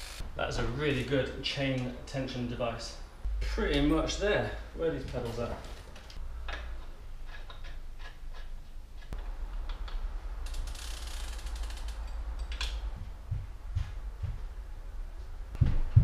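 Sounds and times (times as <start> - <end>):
bicycle parts clicking and knocking: 5.1 - 12.9
ratcheting clicks: 9.6 - 12.9.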